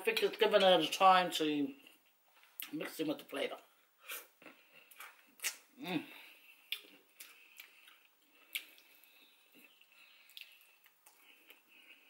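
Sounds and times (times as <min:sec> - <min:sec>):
person chewing: 0:04.0 - 0:12.0
wet mouth clicks and lip smacks: 0:04.4 - 0:05.7, 0:06.7 - 0:09.1, 0:09.7 - 0:11.6.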